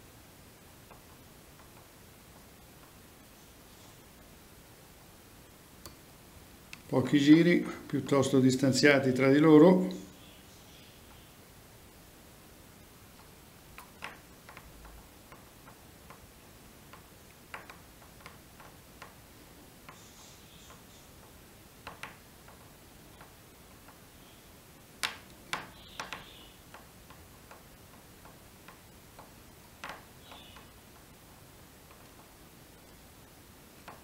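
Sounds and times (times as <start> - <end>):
faint steady hiss: 0.0 - 34.0
tools clicking and tapping: 13.1 - 24.0, 25.0 - 33.0, 33.8 - 34.0.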